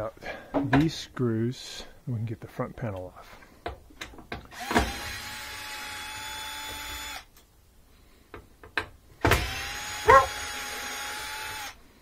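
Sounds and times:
cordless drill motor whine: 4.5s - 7.3s, 9.3s - 11.8s.

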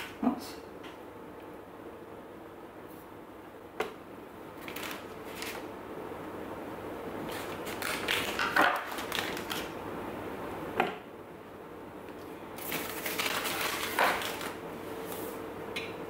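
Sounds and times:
paper wrapper crinkling: 4.6s - 5.6s, 7.3s - 9.8s, 12.6s - 14.6s.

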